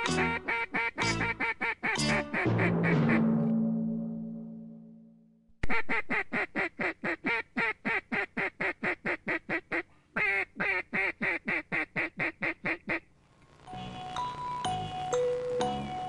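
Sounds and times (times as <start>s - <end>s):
duck quacking: 0.0s - 3.5s, 5.6s - 13.1s.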